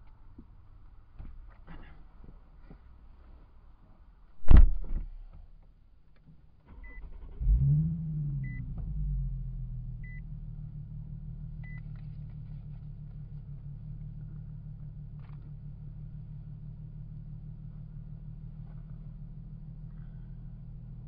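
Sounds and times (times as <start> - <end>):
car engine starting and idling: 6.6 - 21.0.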